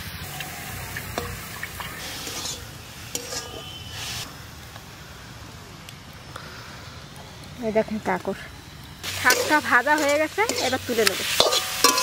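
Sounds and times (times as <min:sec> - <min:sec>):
greens sizzling in a wok: 0:00.0 - 0:12.0
water swishing and pouring: 0:00.2 - 0:02.9
spoon scraping a wok: 0:01.2 - 0:04.2, 0:09.1 - 0:12.0.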